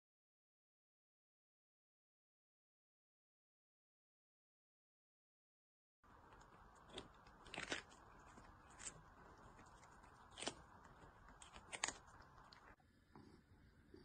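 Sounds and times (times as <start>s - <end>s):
kitten crunching cucumber: 6.0s - 12.8s.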